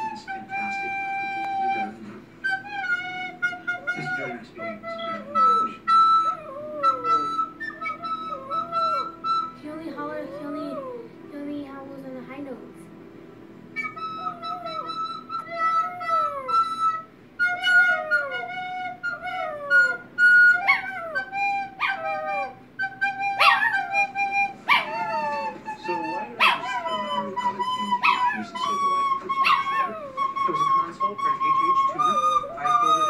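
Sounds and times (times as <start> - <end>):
recorder playing held notes: 0.0 - 12.0, 12.7 - 33.0
small dog howling: 2.6 - 9.5, 13.8 - 30.8, 31.5 - 33.0.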